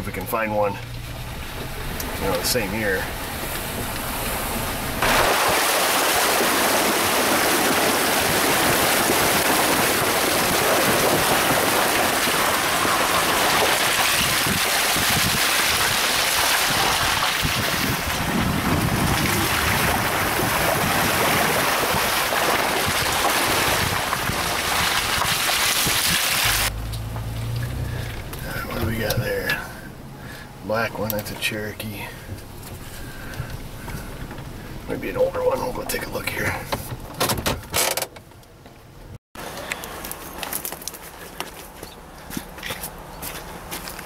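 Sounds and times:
wind rushing over microphone: 3.3s - 26.7s.

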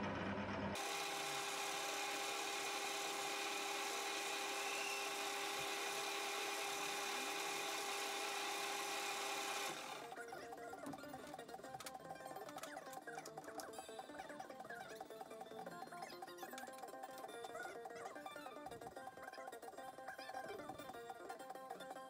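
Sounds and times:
metal lathe whining: 0.8s - 10.1s.

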